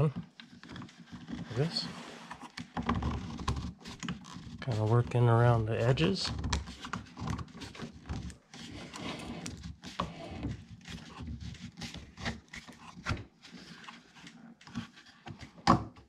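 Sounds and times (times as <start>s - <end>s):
rubber tire rubbing on plastic: 0.0s - 6.0s.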